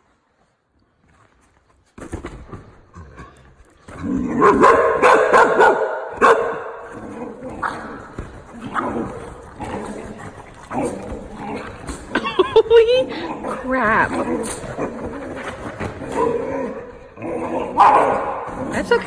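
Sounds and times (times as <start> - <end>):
dogs barking and yipping: 4.4 - 7.0.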